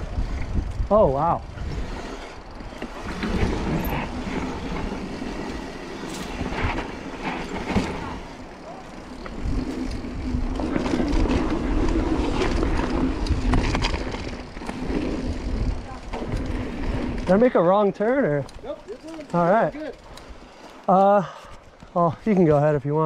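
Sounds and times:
wind on microphone: 0.0 - 7.3
bike clattering and rattling: 0.0 - 22.7
bike tyres on dirt: 0.0 - 23.0.

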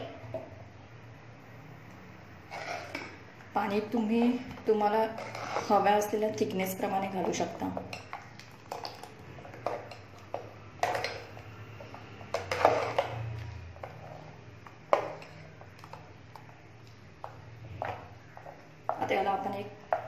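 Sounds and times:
ladle scraping steel pot: 2.4 - 3.2, 4.9 - 6.1, 10.8 - 15.6.

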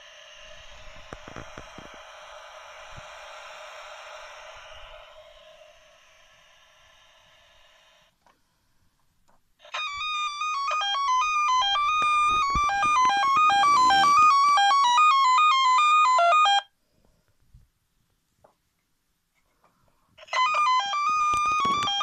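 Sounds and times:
faint electronic tone: 0.0 - 8.2, 9.7 - 16.7
fast electronic beeping tune: 9.8 - 16.7.

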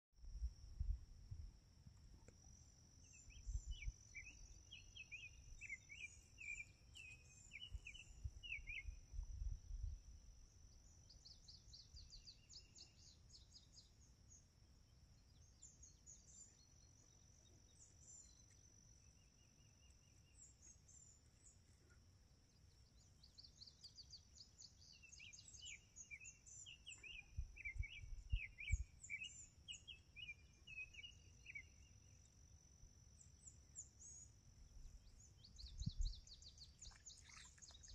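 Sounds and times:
low rumbles on microphone: 35.6 - 36.3.

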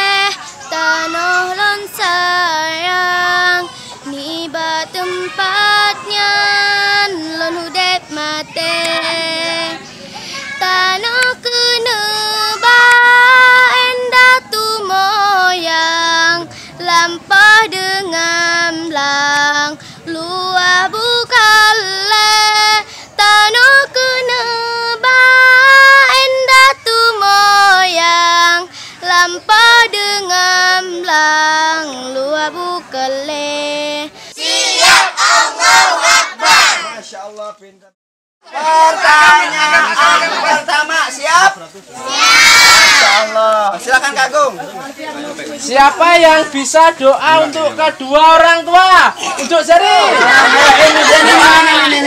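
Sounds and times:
girl singing: 0.0 - 36.7.

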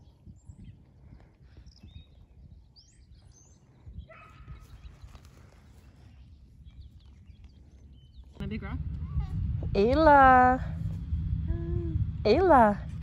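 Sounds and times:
low rumble: 8.3 - 13.0.

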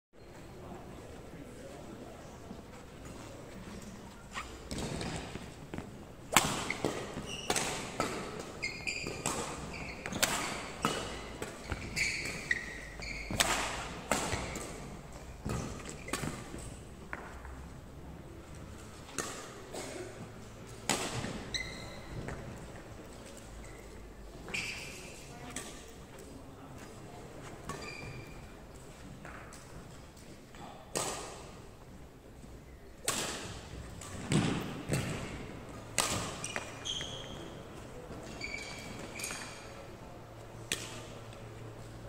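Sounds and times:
shoe squeaks on wooden floor: 4.3 - 4.7, 6.7 - 7.6, 8.5 - 13.4, 21.4 - 22.3, 23.6 - 25.3, 27.7 - 28.5, 36.4 - 39.6
racket striking shuttlecock: 6.3 - 14.9, 33.0 - 36.8.

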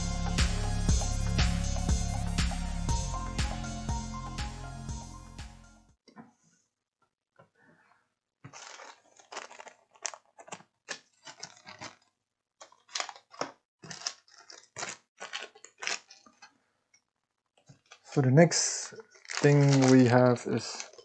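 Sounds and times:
plastic bags crinkling: 8.5 - 16.5, 17.6 - 21.0.

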